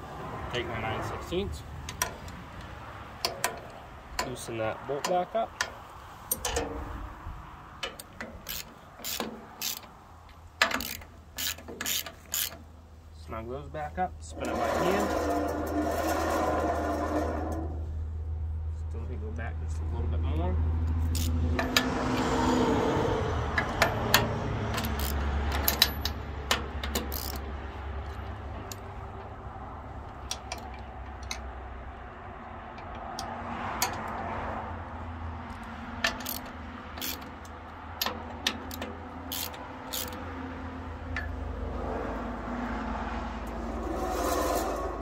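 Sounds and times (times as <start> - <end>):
wrench clicking on metal bolts: 1.8 - 4.4, 5.0 - 7.1, 7.8 - 12.7, 21.0 - 22.3, 23.5 - 29.3, 30.0 - 31.5, 35.5 - 40.4.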